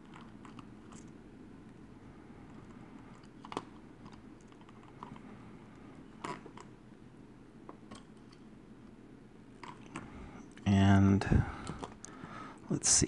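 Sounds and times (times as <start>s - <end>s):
low hiss: 10.3s - 13.0s.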